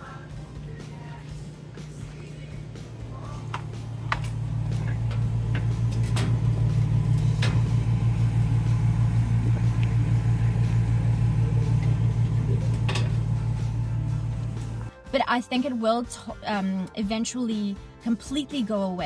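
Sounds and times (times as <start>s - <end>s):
refrigeration unit humming: 0.0s - 14.9s.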